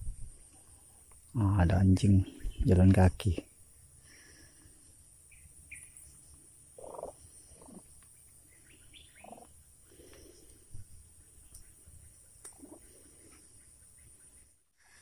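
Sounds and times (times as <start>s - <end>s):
bird chirps: 5.2s - 10.4s.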